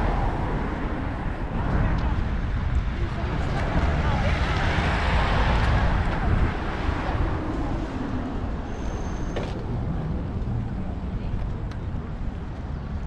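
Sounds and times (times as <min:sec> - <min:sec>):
steady traffic rumble: 0:00.0 - 0:13.0.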